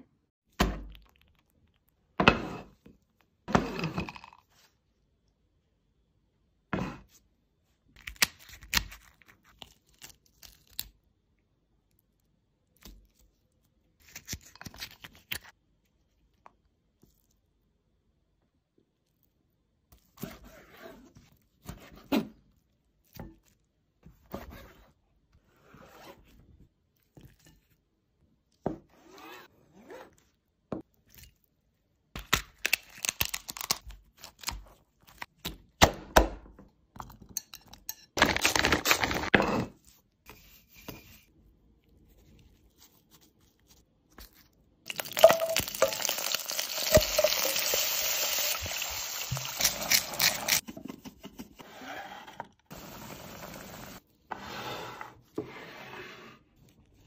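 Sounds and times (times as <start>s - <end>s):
stir-frying sizzle in a wok: 45.1s - 50.6s
shears cutting through shell: 49.3s - 50.6s.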